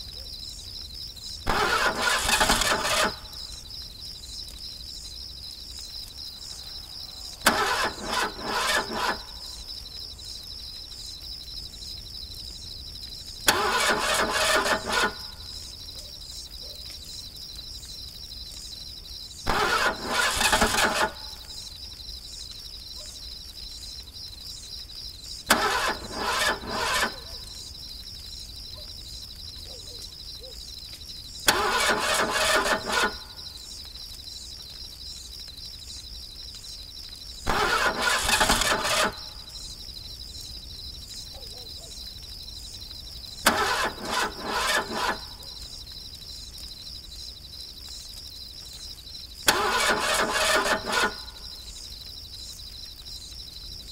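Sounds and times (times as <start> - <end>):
night insects chirping: 0.0 - 53.9
engine cranking: 1.5 - 3.3, 7.4 - 9.4, 13.5 - 15.4, 19.5 - 21.4, 25.5 - 27.4, 31.5 - 33.3, 37.5 - 39.4, 43.5 - 45.4, 49.5 - 51.4.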